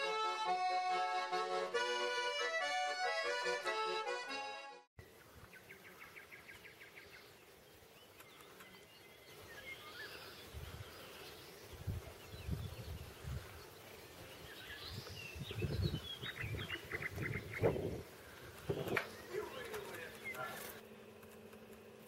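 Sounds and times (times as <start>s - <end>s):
small birds chirping: 5.0s - 21.7s.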